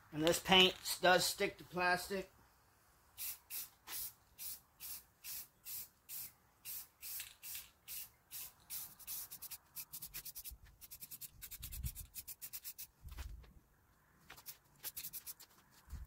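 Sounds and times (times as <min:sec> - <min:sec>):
spray paint can hissing: 0:03.2 - 0:13.0, 0:14.4 - 0:15.5.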